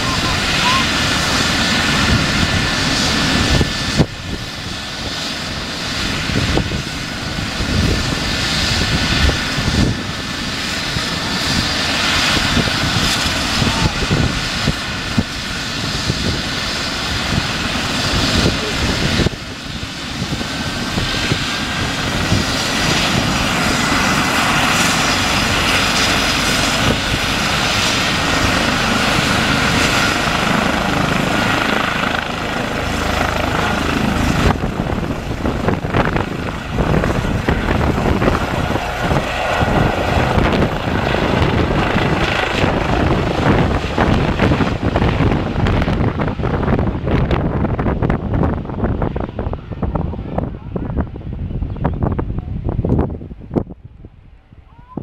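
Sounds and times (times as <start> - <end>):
helicopter engine whine: 0.0 - 55.0.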